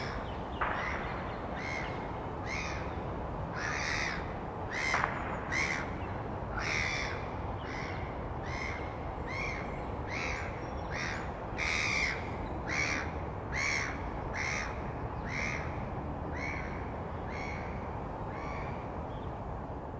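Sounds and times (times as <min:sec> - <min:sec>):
gulls giving harsh calls: 0:00.0 - 0:19.0.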